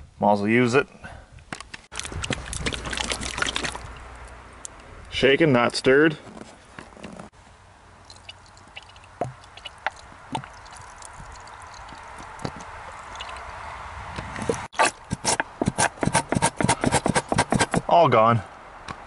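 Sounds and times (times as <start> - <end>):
liquid gurgling from bottle: 2.0 - 3.9.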